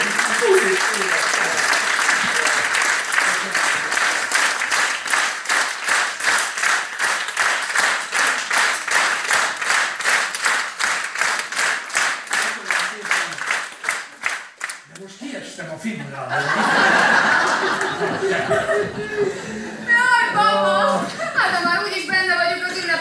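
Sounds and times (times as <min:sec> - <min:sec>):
audience clapping in unison: 0:00.0 - 0:15.2, 0:16.6 - 0:19.1.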